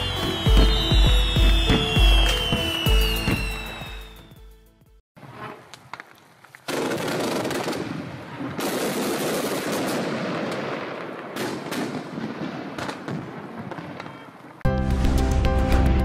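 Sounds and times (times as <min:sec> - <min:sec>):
fireworks rattle of shots: 0:05.8 - 0:14.6.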